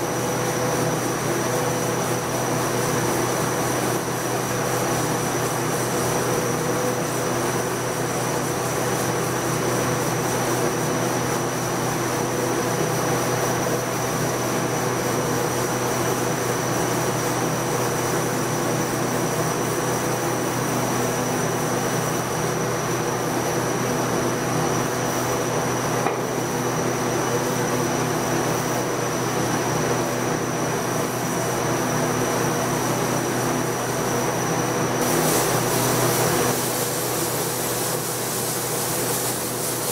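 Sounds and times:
sandblaster hissing: 0:35.0 - 0:39.9.

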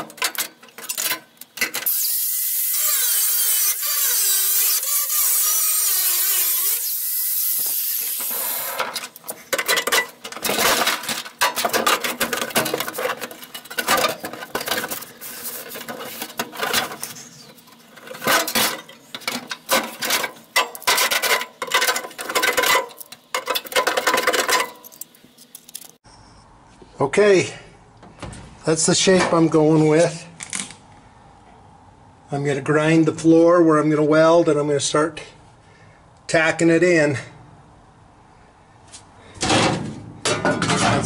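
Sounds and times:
angle grinder grinding steel: 0:01.8 - 0:09.0
sheet steel scraping and clanking: 0:08.1 - 0:25.0.

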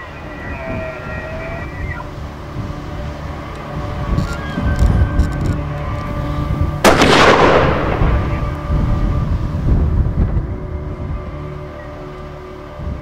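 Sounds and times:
rifle shot echoing: 0:06.8 - 0:08.7.

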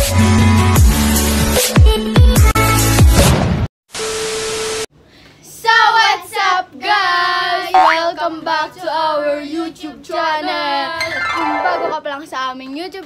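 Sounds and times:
steady beep: 0:07.8 - 0:08.1.

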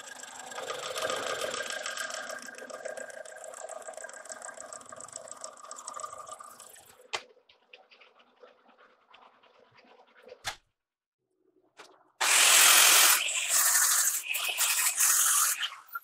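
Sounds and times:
metal lathe cutting with ticks: 0:00.0 - 0:06.2, 0:12.2 - 0:16.0.

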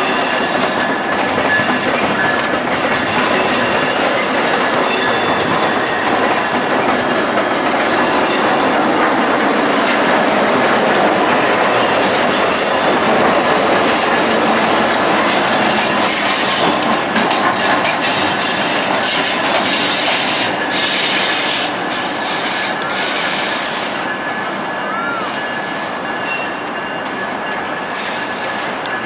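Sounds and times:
high wheel squeal: 0:00.0 - 0:06.2, 0:13.8 - 0:16.9, 0:18.0 - 0:28.8
wheels clicking over rail joints: 0:00.0 - 0:23.2
passenger train running by: 0:00.0 - 0:29.0.

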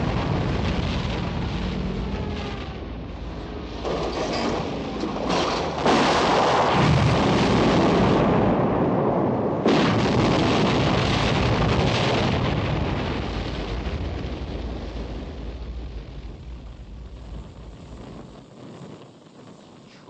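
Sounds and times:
explosion blasts: 0:00.0 - 0:18.7
explosion rumble: 0:00.0 - 0:19.8.

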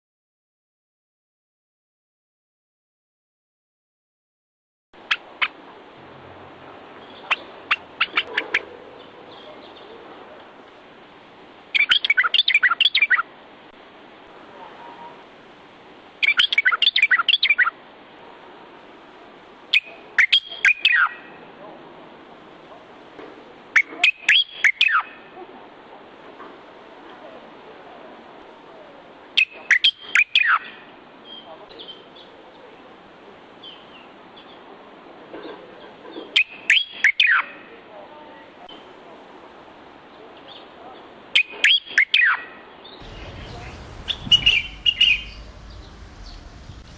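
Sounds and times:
faint steady hiss: 0:05.0 - 0:37.0, 0:37.6 - 0:46.9
bulbul singing: 0:43.0 - 0:46.9.

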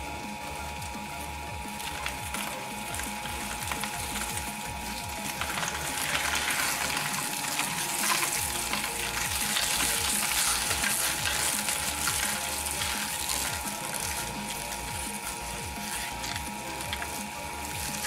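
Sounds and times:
machine humming: 0:00.0 - 0:18.0
shredder crunching cabbage: 0:00.0 - 0:18.0.

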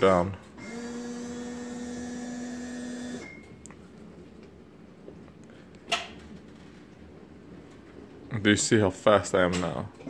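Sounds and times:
electric seat motor humming: 0:00.6 - 0:03.5.

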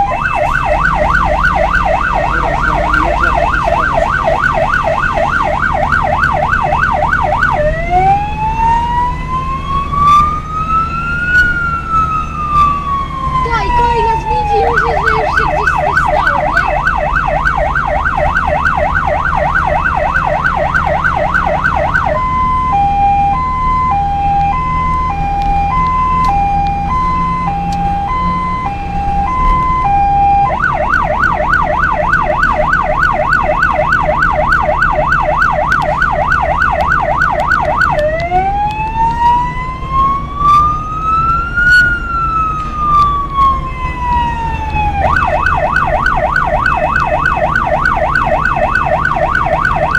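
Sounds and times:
engine and road rumble: 0:00.0 - 0:49.9
vehicle siren: 0:00.0 - 0:49.9.

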